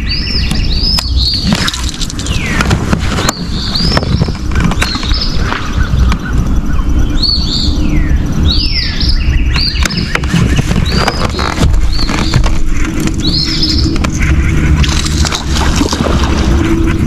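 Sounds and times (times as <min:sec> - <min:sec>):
songbird whistling: 0:00.0 - 0:01.5, 0:03.2 - 0:12.5, 0:13.2 - 0:14.3
low steady rumble: 0:00.0 - 0:17.0.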